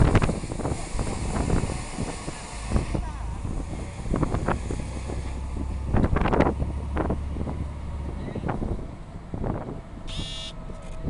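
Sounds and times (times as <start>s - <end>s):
ship horn blast: 10.1s - 10.6s.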